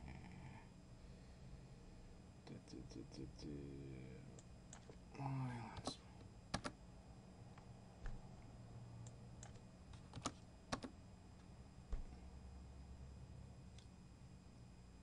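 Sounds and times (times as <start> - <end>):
keyboard keystrokes: 6.5 - 6.8, 9.4 - 10.9.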